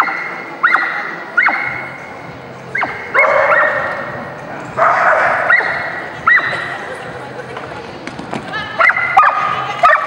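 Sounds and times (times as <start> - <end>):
dog barking with echo: 2.8 - 4.1, 4.8 - 6.7, 8.8 - 10.0.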